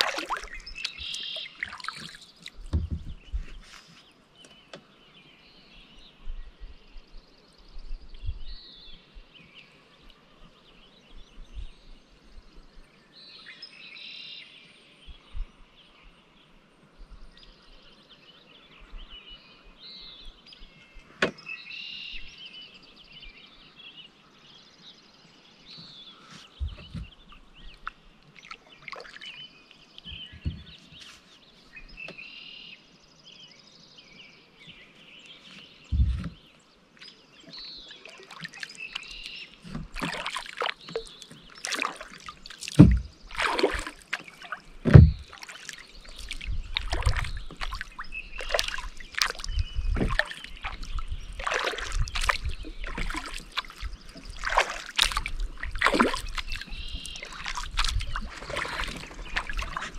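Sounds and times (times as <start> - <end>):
kayak paddle splashing: 0.0 - 4.5, 25.8 - 30.7, 35.8 - 59.9
birds chirping: 0.0 - 59.9
sharp low thumps: 42.8 - 43.2, 44.8 - 45.4.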